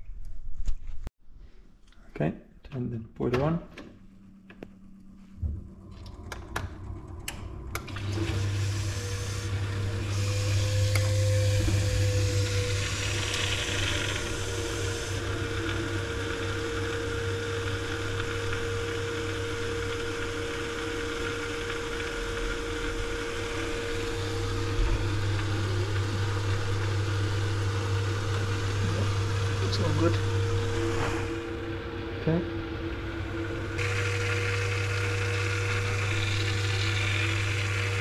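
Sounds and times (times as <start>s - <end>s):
boiler pump and fan hum: 2.2s - 38.0s
rushing water and burner: 7.7s - 32.4s.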